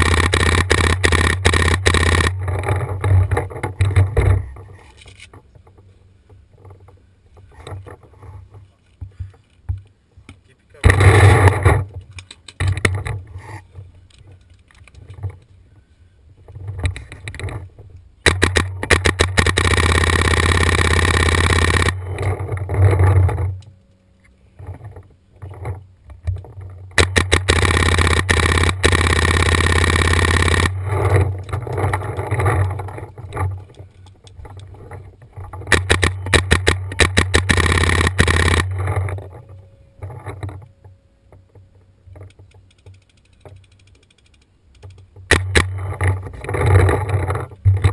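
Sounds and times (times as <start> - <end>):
paintball marker firing bursts: 0.0 - 2.6, 10.8 - 11.9, 18.2 - 22.4, 26.9 - 31.4, 35.7 - 39.2, 45.3 - 46.1.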